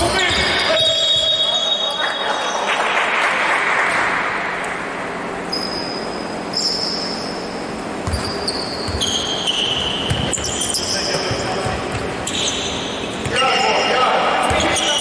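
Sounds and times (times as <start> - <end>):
sneaker squeaks on floor: 0.0 - 2.0, 5.4 - 15.0
echoing hall noise: 0.0 - 15.0
basketball bouncing: 8.0 - 13.5, 14.4 - 15.0.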